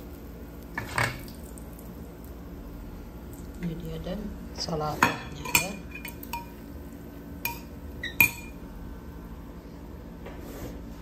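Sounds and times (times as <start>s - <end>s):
cutlery clinking on ceramic bowl: 5.0s - 6.6s, 7.4s - 8.6s.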